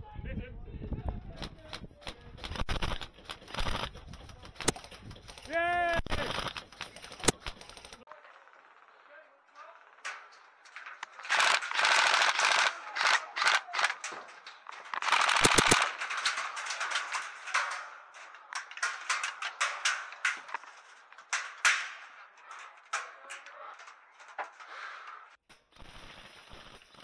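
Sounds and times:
airsoft rifles firing bursts: 11.2s - 13.9s, 15.0s - 15.9s.

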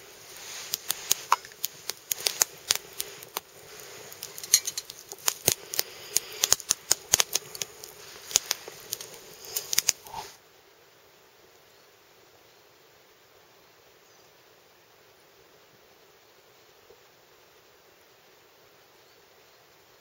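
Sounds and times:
campfire crackling and popping: 0.0s - 10.4s
low hiss: 0.0s - 20.0s.

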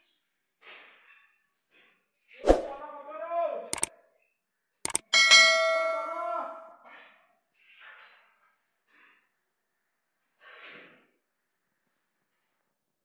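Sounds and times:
bell-like ding: 5.1s - 6.5s.

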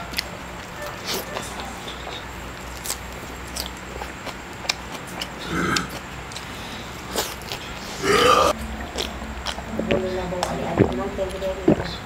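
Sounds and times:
wet chewing clicks and smacks: 0.0s - 8.0s, 8.7s - 12.0s.

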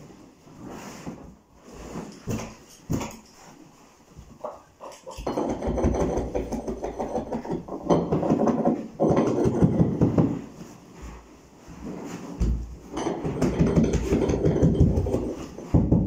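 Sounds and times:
carpet rustling and dragging: 0.0s - 2.7s, 9.9s - 13.0s.

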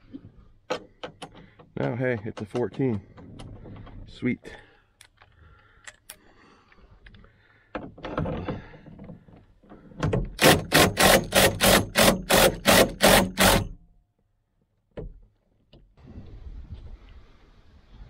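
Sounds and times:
impact driver hammering: 10.4s - 13.8s.

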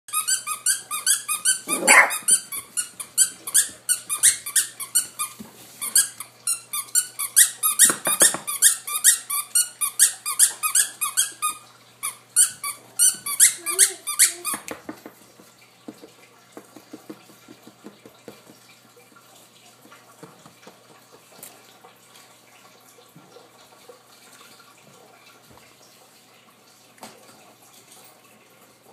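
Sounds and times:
puppy squeaking: 0.1s - 4.9s, 12.4s - 14.6s.

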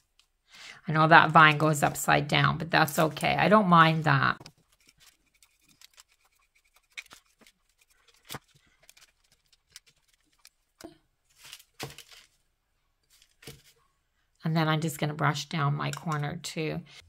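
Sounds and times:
paintbrush brushing strokes: 4.8s - 8.2s.

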